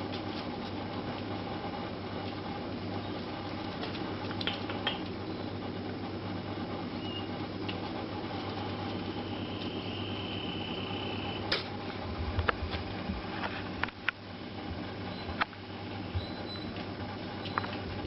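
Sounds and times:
background hum: 0.0 - 18.0.

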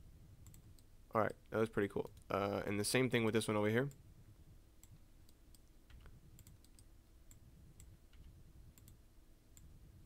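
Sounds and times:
computer mouse and keyboard clicks: 4.8 - 9.0.

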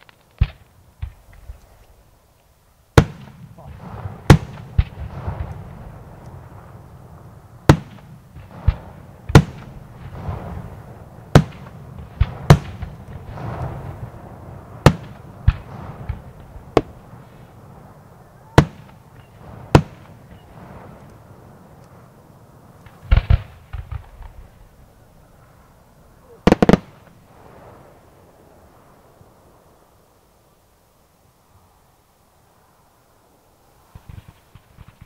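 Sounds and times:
firework crackling: 0.0 - 30.8, 33.6 - 35.0
firework shells bursting: 26.3 - 27.2.

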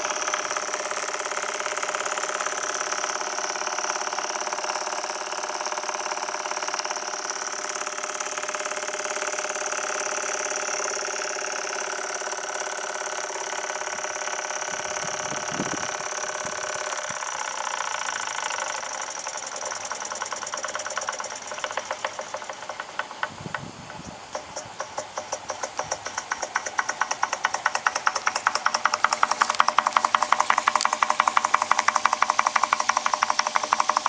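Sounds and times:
steam engine exhaust chuffs: 0.0 - 34.0
steam hissing: 13.3 - 34.0.

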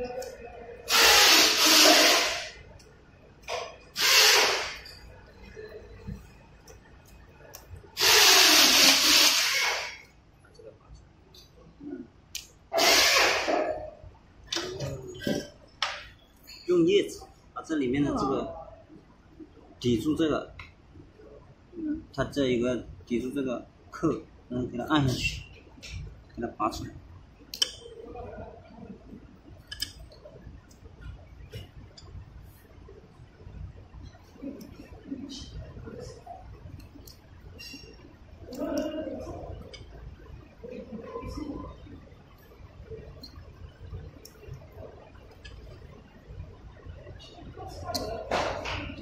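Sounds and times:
loud hiss: 0.9 - 2.6, 4.0 - 4.8, 8.0 - 10.0, 12.7 - 13.5.

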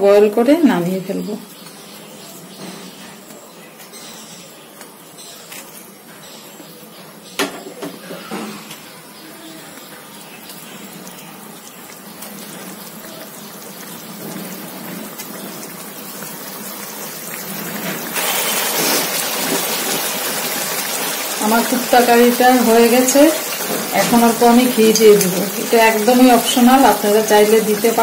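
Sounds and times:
curry gravy boiling in a pan: 0.8 - 28.0.

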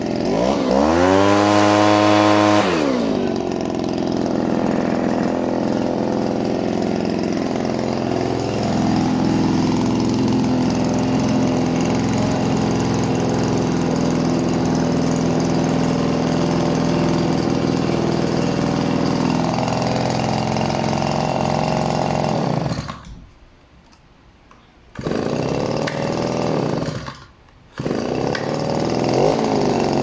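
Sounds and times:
blower engine revving: 0.0 - 23.1, 25.0 - 30.0.

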